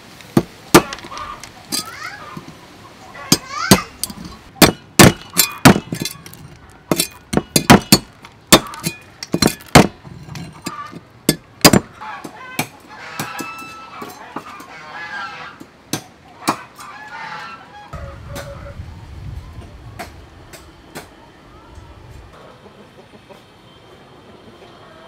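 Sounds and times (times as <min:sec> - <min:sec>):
cleaver chopping on wooden block: 0:00.4 - 0:01.2, 0:04.6 - 0:06.1, 0:06.9 - 0:10.0, 0:11.3 - 0:11.9.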